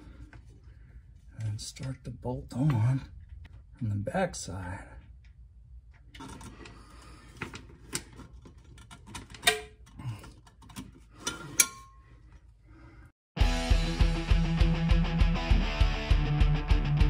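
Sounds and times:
rock music with electric guitar: 0:13.4 - 0:17.0.

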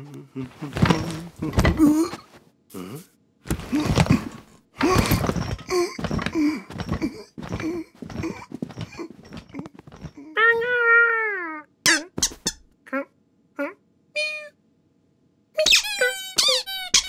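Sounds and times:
cartoon grunts and squeaks: 0:10.2 - 0:14.5, 0:15.6 - 0:17.0.

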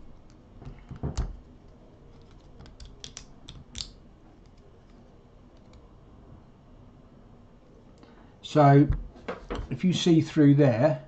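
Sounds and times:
metal parts clicking together: 0:02.2 - 0:03.9.

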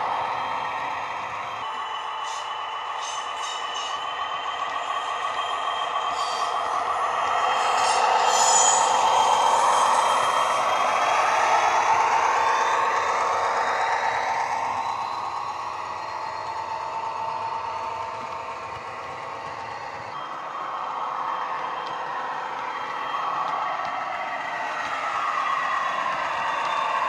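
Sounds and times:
diesel engines running: 0:00.0 - 0:27.0
turbo whistle: 0:01.6 - 0:10.4.

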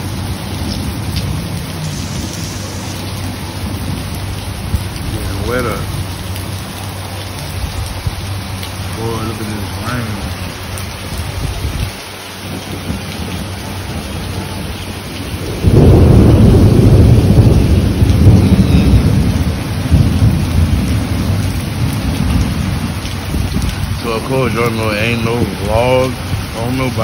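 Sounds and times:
loud low rumble: 0:00.0 - 0:23.7
heavy rain pouring: 0:00.0 - 0:27.0.

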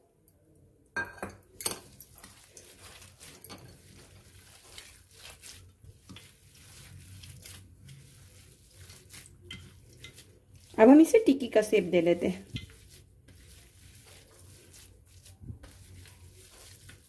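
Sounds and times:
hands squishing food mixture: 0:01.5 - 0:17.0.

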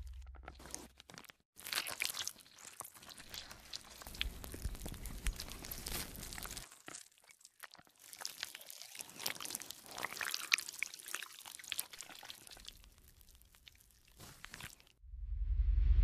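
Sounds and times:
marker nib crackling on paper: 0:03.1 - 0:06.7.

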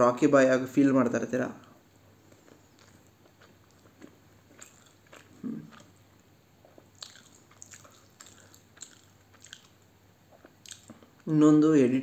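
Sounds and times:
person chewing and biting: 0:02.2 - 0:11.2.

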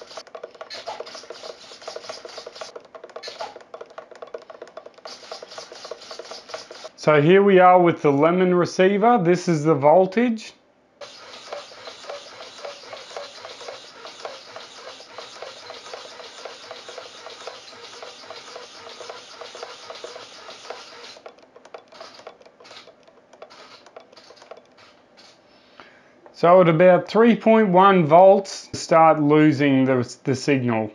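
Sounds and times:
servos buzzing and whirring: 0:00.0 - 0:07.0, 0:11.0 - 0:25.5.

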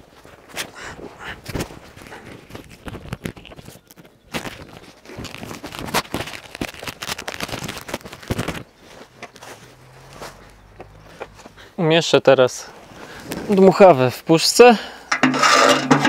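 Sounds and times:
leather jacket rustling: 0:04.4 - 0:11.7.

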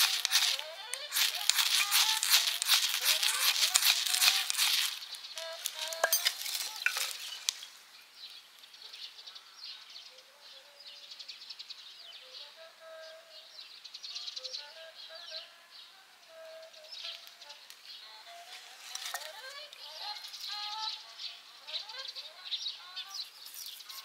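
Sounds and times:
wood shavings crackling and hissing: 0:00.0 - 0:08.7, 0:17.1 - 0:21.0, 0:23.2 - 0:24.0.

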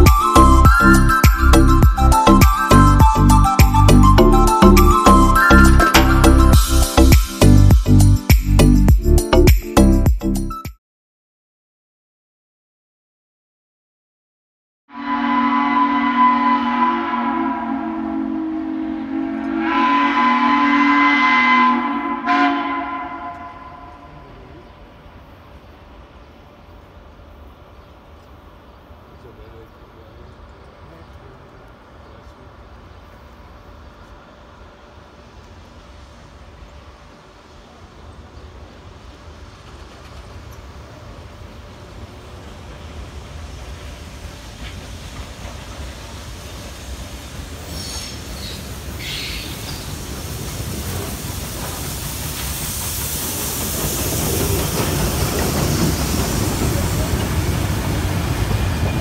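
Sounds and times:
steam locomotive rumbling: 0:00.0 - 0:08.8, 0:15.0 - 0:59.0
steam locomotive whistle: 0:14.9 - 0:24.4.

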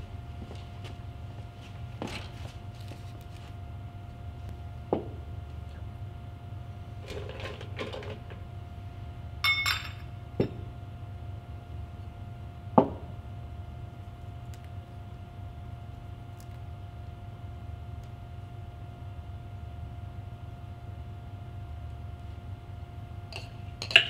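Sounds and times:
steady low hum: 0:00.0 - 0:24.0
glass clink: 0:09.4 - 0:10.1.

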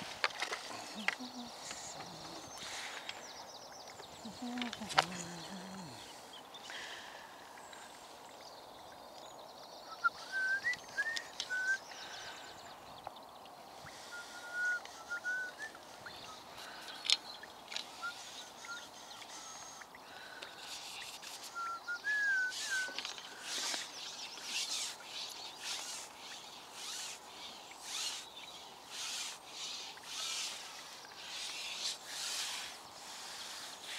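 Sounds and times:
sharp clicks and rustles: 0:00.0 - 0:03.3
outdoor background noise: 0:00.0 - 0:33.9
small bird chirping: 0:00.0 - 0:33.9.

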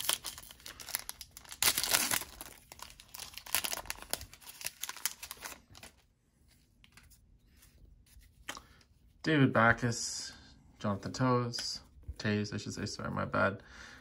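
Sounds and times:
foil wrapper crinkling and tearing: 0:00.0 - 0:06.0.

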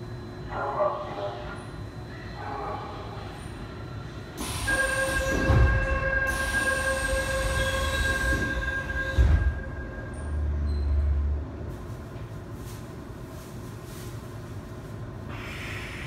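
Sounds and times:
low train hum: 0:00.0 - 0:16.0
high buzzer tone: 0:04.6 - 0:10.2.

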